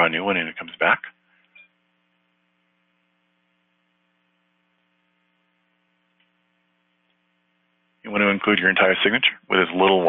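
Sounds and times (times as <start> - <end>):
faint mains hum: 0.0 - 10.0
faint click: 6.1 - 6.4.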